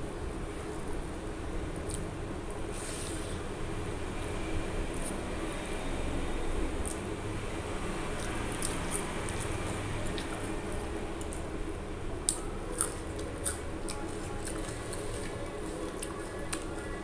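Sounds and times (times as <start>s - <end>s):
steady low hum: 0.0s - 17.0s
person chewing food: 8.1s - 11.6s, 12.2s - 17.0s.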